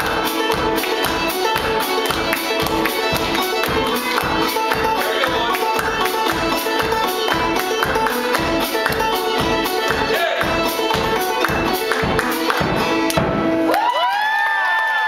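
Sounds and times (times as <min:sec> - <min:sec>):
clawhammer banjo: 0:00.0 - 0:13.7
audience whistling and cheering: 0:13.7 - 0:15.0.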